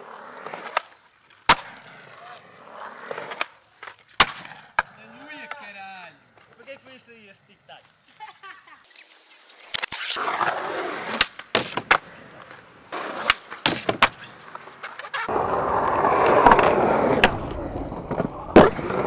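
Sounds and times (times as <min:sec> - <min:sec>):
skateboard wheels rolling on concrete: 0:00.0 - 0:19.0
skateboard clacks: 0:11.1 - 0:19.0.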